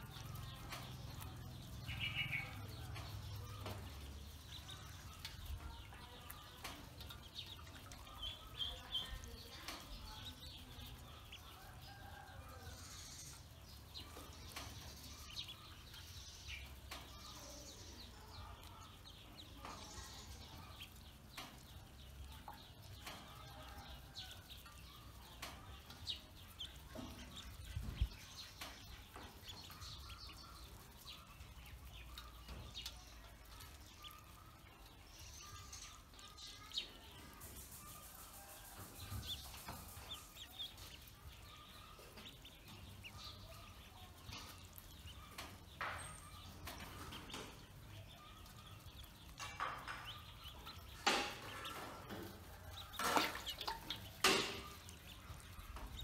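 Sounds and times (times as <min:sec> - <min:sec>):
ducklings peeping: 0:00.0 - 0:56.0
water splashing in metal basin: 0:50.9 - 0:56.0.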